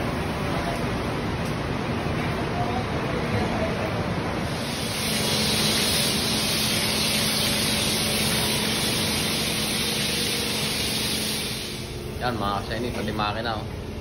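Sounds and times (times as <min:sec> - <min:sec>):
pressure washer spraying water: 0:04.5 - 0:12.0.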